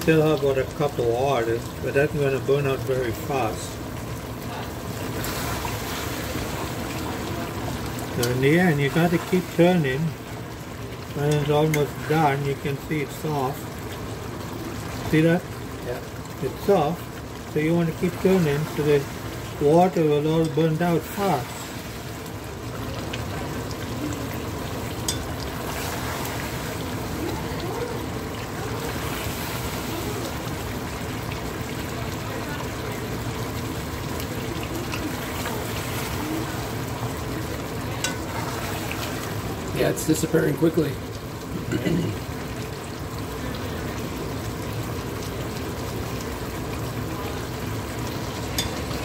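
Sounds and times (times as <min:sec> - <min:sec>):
food bubbling and sizzling in a pot: 0:00.0 - 0:49.0
metal spoon clinking on pot: 0:48.6 - 0:48.9.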